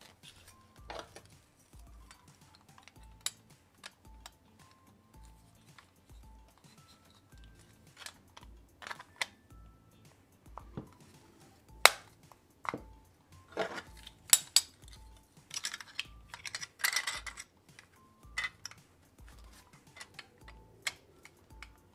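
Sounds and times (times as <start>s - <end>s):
soft background music with beat: 0.0s - 21.9s
plastic model car clicks and knocks: 7.9s - 9.4s.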